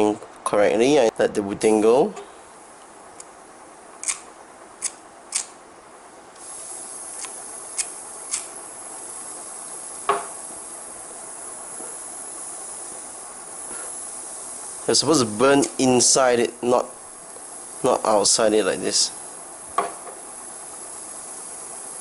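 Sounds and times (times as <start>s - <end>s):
lighter clicks: 4.0s - 4.2s, 4.8s - 5.5s, 7.2s - 8.5s
butane gas hissing: 6.3s - 22.0s.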